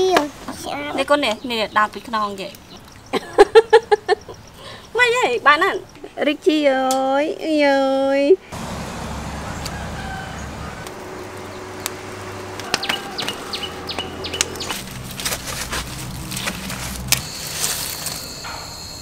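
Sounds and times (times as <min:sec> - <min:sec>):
outdoor rural ambience: 0:00.0 - 0:19.0
steady high whine: 0:10.4 - 0:19.0.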